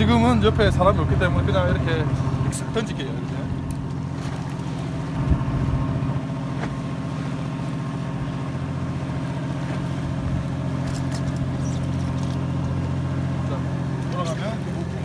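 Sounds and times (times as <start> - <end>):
boat engine droning: 0.0 - 15.0.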